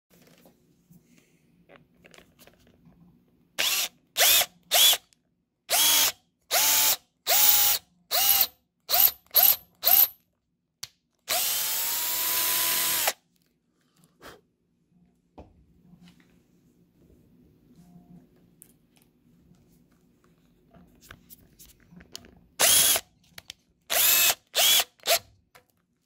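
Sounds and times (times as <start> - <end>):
cordless drill drilling into wood: 3.6 - 5.0, 5.7 - 10.1, 11.3 - 13.2, 22.6 - 23.0, 23.9 - 25.2.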